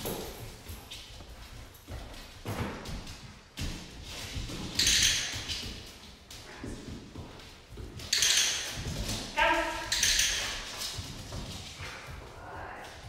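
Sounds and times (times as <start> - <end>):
thuds and scuffs on hard floor: 0.0 - 9.4, 10.7 - 12.4.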